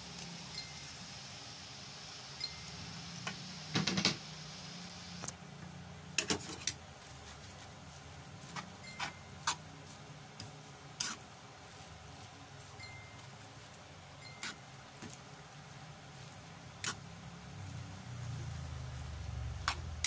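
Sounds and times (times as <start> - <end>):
metal spatula scraping a pan: 11.0 - 11.2.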